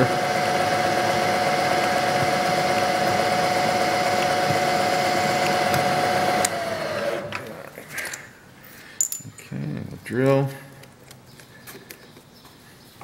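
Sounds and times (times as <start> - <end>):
milling machine spindle whine: 0.0 - 7.3.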